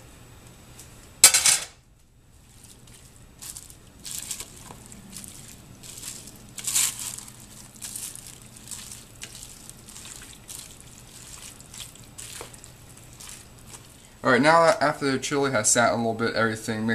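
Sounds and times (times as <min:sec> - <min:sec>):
low steady hum: 0:00.0 - 0:16.9
wet squelching stirring: 0:02.3 - 0:15.0
plastic liner crinkling: 0:02.4 - 0:14.8.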